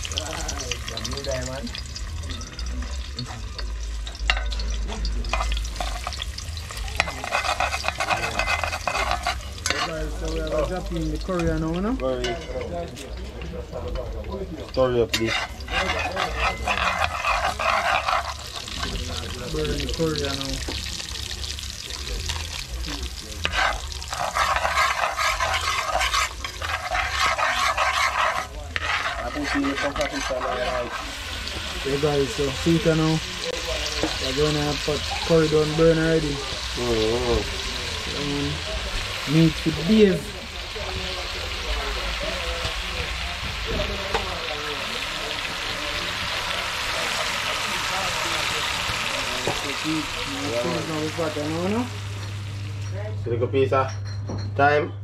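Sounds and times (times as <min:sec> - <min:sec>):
food sizzling in oil: 0:00.0 - 0:53.1
metal spoon scraping pot: 0:03.6 - 0:06.2, 0:07.0 - 0:10.0, 0:15.1 - 0:19.2, 0:23.4 - 0:31.2.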